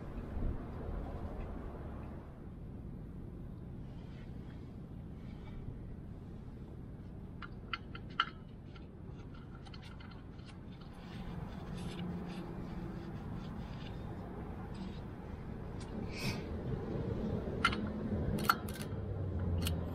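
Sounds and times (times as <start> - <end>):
low steady rumble: 0.0 - 19.9
scratchy handling and rag wiping: 11.0 - 14.5
sharp metal clicks: 17.6 - 19.9.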